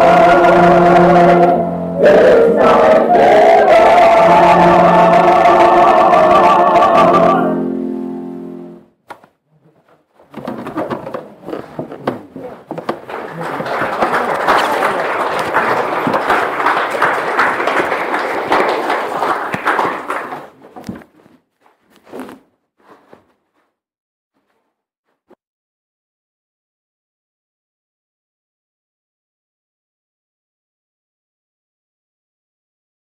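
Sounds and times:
audience applauding: 0:12.6 - 0:20.7.

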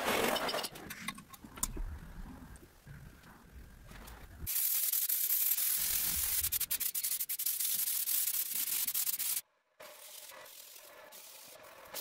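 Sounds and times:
spray paint can hissing: 0:04.5 - 0:12.0.

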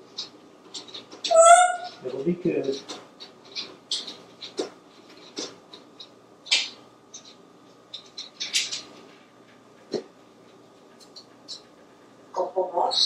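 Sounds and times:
parrot clicks and squeaks: 0:00.2 - 0:02.0, 0:02.7 - 0:08.9.

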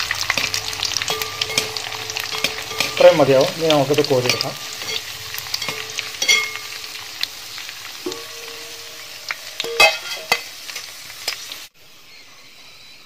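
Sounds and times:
raisins sizzling in hot oil: 0:00.0 - 0:12.2
wire skimmer clanking on metal: 0:00.2 - 0:06.9.

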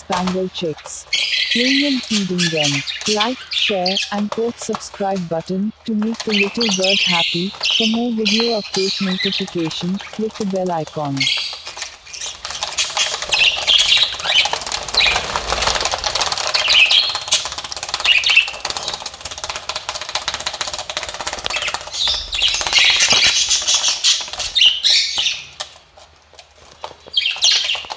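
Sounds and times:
budgie wings flapping on plastic: 0:11.4 - 0:27.9.

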